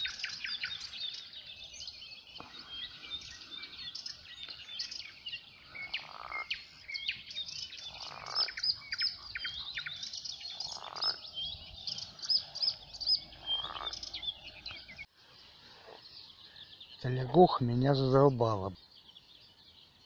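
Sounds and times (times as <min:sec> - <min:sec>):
songbirds chirping: 0:00.0 - 0:20.0
frog croaking: 0:05.6 - 0:07.0, 0:07.6 - 0:14.5.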